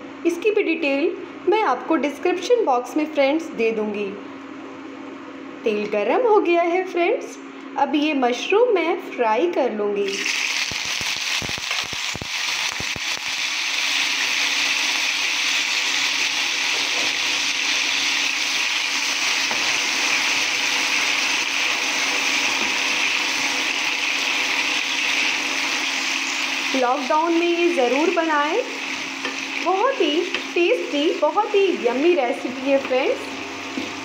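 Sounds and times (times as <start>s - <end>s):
mushrooms sizzling in oil: 10.1s - 32.9s.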